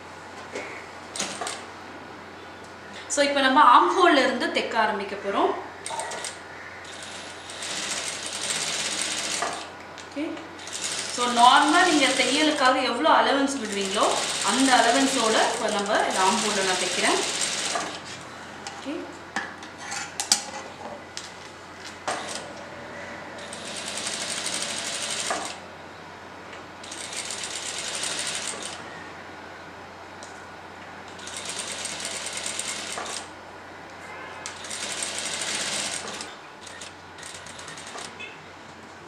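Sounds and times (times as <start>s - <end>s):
sewing machine stitching: 34.6s - 38.2s.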